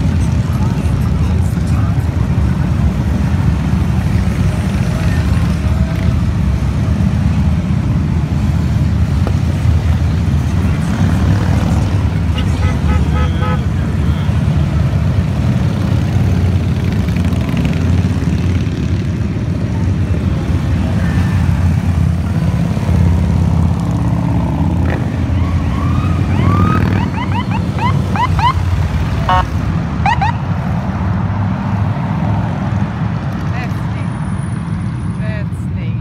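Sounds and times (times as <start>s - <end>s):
motorcycle engines droning: 0.0s - 30.9s
police siren yelps: 25.2s - 30.4s.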